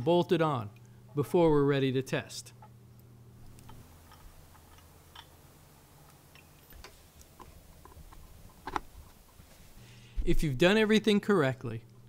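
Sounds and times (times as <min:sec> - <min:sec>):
low steady hum: 0:00.0 - 0:12.0
tools clicking on metal fittings: 0:03.6 - 0:05.4.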